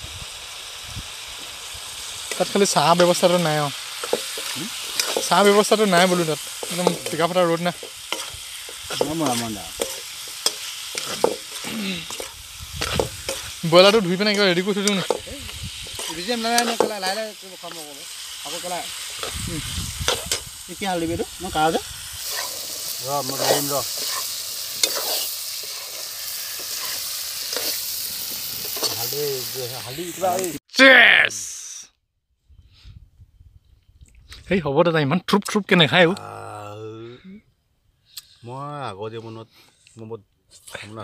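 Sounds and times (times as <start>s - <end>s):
pork sizzling in a pan: 0.0s - 30.6s
metal ladle scraping a pan: 2.3s - 19.4s, 20.0s - 20.5s, 22.2s - 29.1s.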